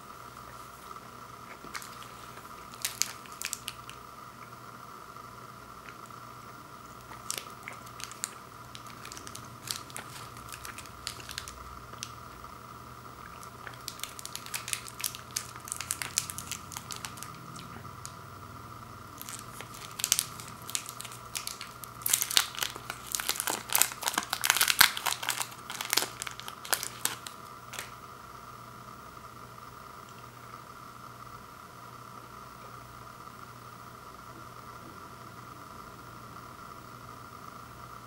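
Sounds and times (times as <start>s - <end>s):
candy wrapper crinkling and tearing: 1.5s - 4.0s, 7.0s - 12.2s, 13.2s - 18.2s, 19.2s - 28.0s.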